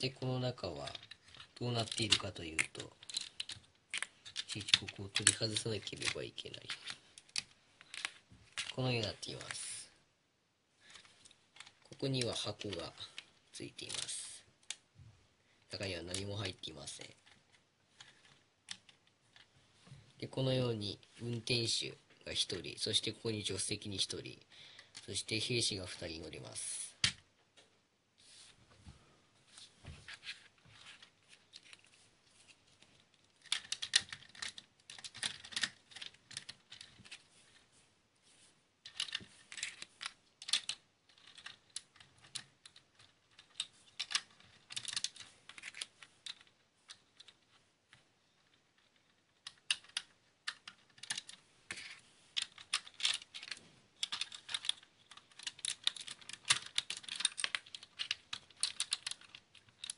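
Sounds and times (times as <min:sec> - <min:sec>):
plastic bricks clicking and clattering: 0:00.8 - 0:09.8, 0:10.8 - 0:14.8, 0:32.8 - 0:37.2, 0:38.8 - 0:59.9.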